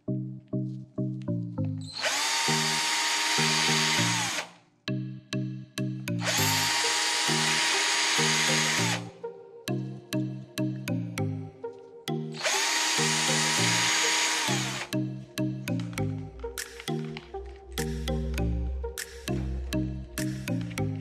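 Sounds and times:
cordless drill motor whine: 1.9s - 4.5s, 6.2s - 9.1s, 12.4s - 14.9s
music with plucked notes: 4.9s - 6.6s, 14.6s - 21.0s.

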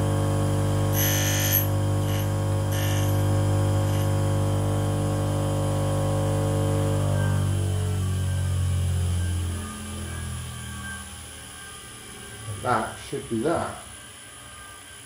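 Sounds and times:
grinder motor humming: 0.0s - 14.3s
grinding hiss: 0.9s - 4.2s.

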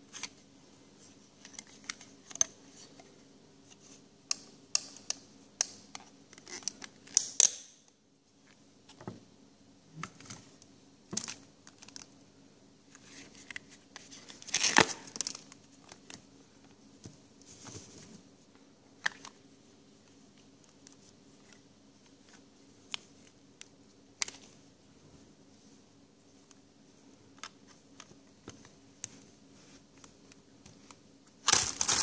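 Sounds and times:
plastic bag crinkling: 31.4s - 32.0s.

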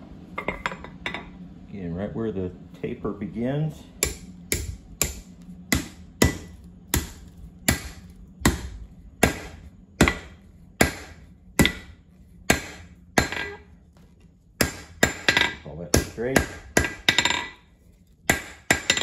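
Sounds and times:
hammer striking hot steel: 4.0s - 13.7s, 14.6s - 17.6s, 18.3s - 19.0s.

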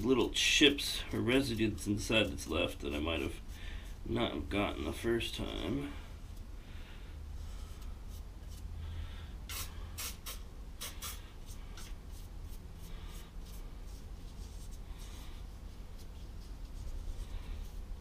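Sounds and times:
brush scrubbing: 0.0s - 5.0s, 10.8s - 18.0s
low steady hum: 0.0s - 18.0s.

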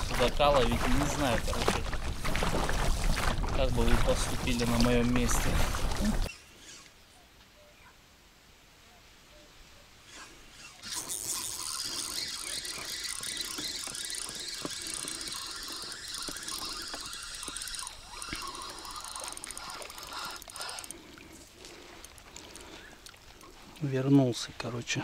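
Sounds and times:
fishing reel drag buzzing: 5.7s - 7.0s, 10.1s - 22.9s.

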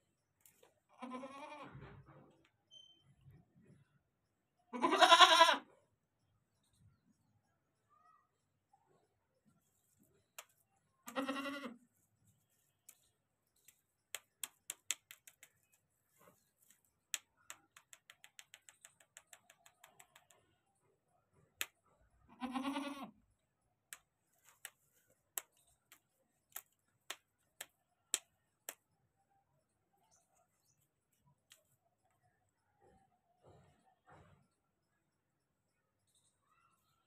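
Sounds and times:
goat bleating: 0.9s - 1.8s, 4.8s - 5.7s, 11.1s - 11.8s, 22.3s - 23.2s
sharp clicks: 12.8s - 15.8s, 16.6s - 20.5s.

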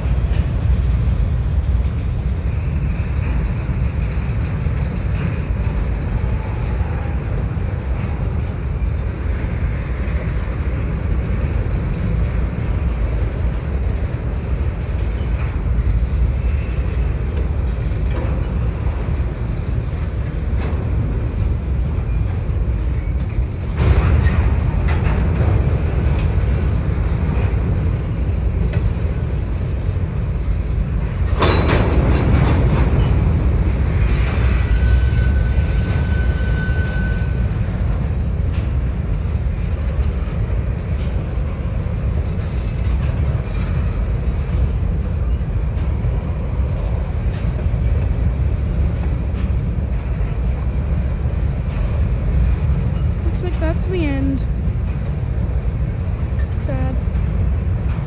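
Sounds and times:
train cars clanking: 0.0s - 58.0s
train wheels rumbling on rail: 0.0s - 58.0s
thin wheel squeal: 34.0s - 37.4s.

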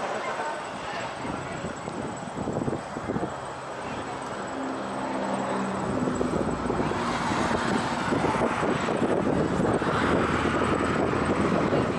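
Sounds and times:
passing vehicles rushing: 0.0s - 11.9s
vehicle engine humming: 0.0s - 11.9s.

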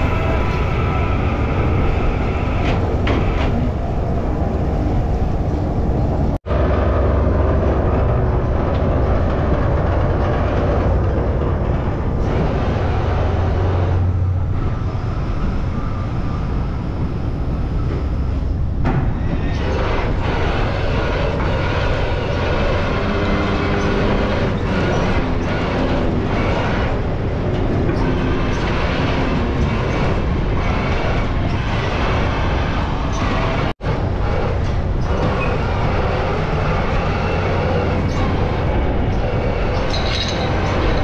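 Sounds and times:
machinery rattling and clatter: 0.0s - 41.0s
ship engines low rumble: 0.0s - 41.0s.

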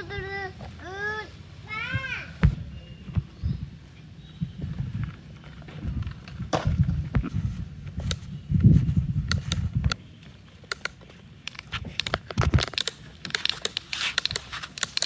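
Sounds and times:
small clicks and rustles: 10.7s - 15.0s
plastic toys scraping in sand: 12.9s - 15.0s.

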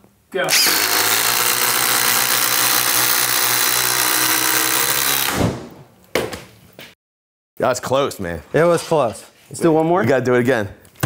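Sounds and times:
impact drivers driving screws: 0.5s - 5.5s.

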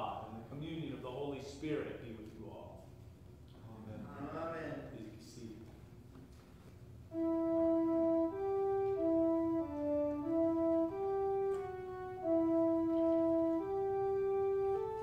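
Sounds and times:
sustained instrumental church music: 5.2s - 15.0s.

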